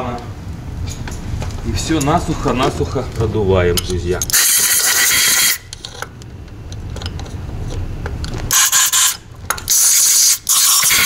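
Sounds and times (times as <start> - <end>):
extraction duct rumble: 0.0 - 4.3.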